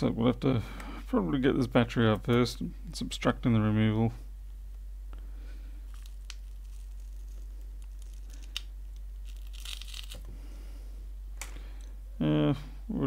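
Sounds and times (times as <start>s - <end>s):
low steady hum: 0.0s - 13.0s
adhesive tearing: 5.8s - 10.3s.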